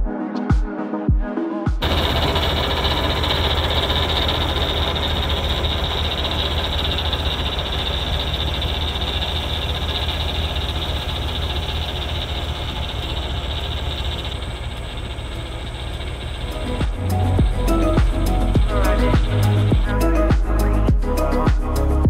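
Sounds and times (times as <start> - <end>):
tractor diesel engine running: 1.8 - 22.0.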